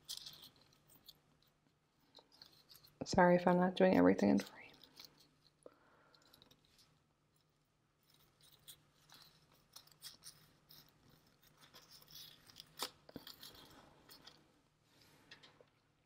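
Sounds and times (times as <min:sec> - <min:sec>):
paper crinkling and rustling: 0:00.0 - 0:03.0, 0:08.0 - 0:14.4.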